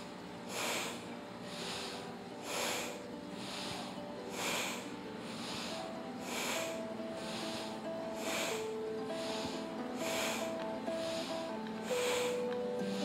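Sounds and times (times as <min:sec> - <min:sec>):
soft background music: 0:00.0 - 0:13.0
woman breathing through nose: 0:00.0 - 0:13.0.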